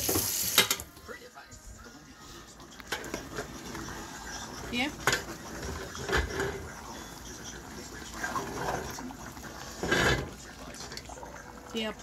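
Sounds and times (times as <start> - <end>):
steady bubbling: 2.8 - 12.0
metal ladle stirring in pot: 2.9 - 11.6.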